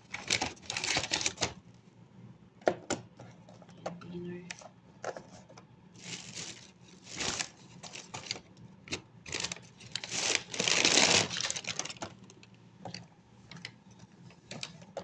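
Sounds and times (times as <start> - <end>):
paperboard boxes rustling: 0.0 - 1.6, 6.0 - 8.4, 9.3 - 12.2.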